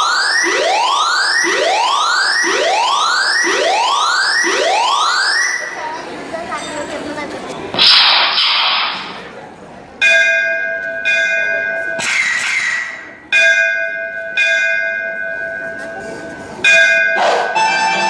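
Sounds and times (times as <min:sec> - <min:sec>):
bell ringing: 0:10.0 - 0:12.0, 0:13.3 - 0:18.0.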